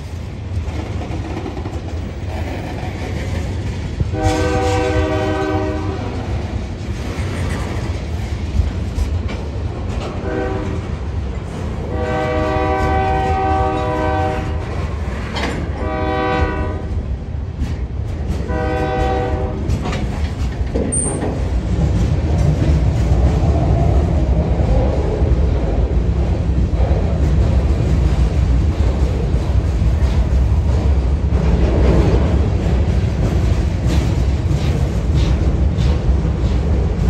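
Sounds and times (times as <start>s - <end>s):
locomotive air horn blasts: 4.1s - 6.2s, 10.2s - 10.9s, 11.9s - 14.6s, 15.7s - 17.0s, 18.5s - 19.7s.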